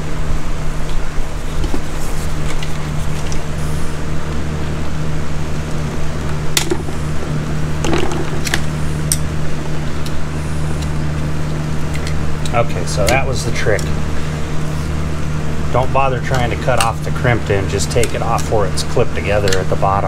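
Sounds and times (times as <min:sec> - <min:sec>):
low mechanical hum: 0:00.0 - 0:20.0.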